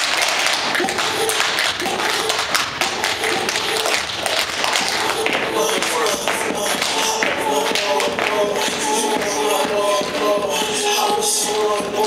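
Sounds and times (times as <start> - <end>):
music: 0.0 - 12.0
tap shoes on stage floor: 0.0 - 12.0.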